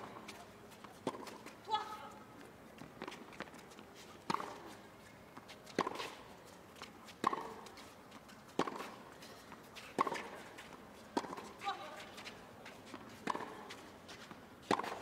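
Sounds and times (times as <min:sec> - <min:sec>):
tennis ball struck by rackets: 0:01.0 - 0:01.8, 0:04.3 - 0:04.6, 0:05.7 - 0:06.2, 0:07.2 - 0:07.7, 0:08.6 - 0:09.0, 0:09.9 - 0:11.9, 0:12.9 - 0:13.7, 0:14.6 - 0:15.0.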